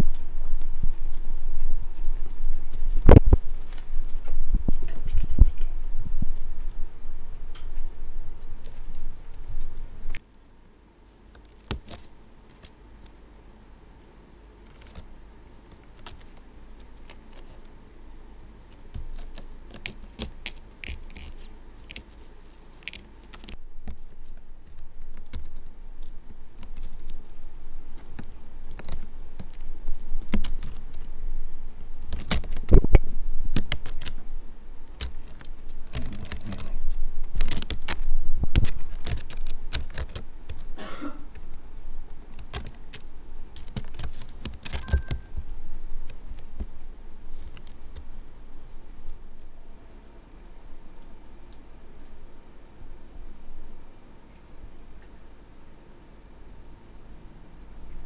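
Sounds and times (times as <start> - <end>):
kittens' claws scratching fibres: 0.0 - 10.2, 11.3 - 13.2, 14.6 - 48.3.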